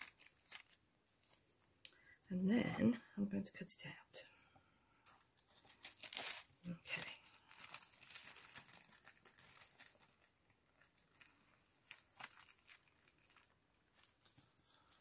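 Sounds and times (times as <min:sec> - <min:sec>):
paper rustling: 0:00.0 - 0:01.7, 0:05.1 - 0:15.0.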